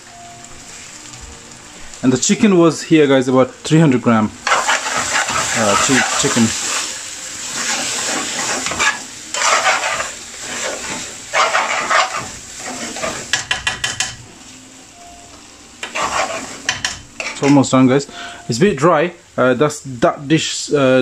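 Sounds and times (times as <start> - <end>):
curry sizzling in a pan: 0.0 - 21.0
metal spoon scraping a pan: 4.4 - 6.9, 7.5 - 14.2, 15.8 - 17.7.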